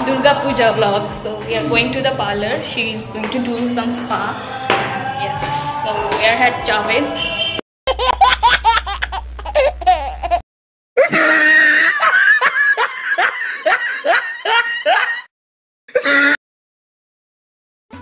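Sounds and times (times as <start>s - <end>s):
hearty laughter: 11.0s - 15.3s.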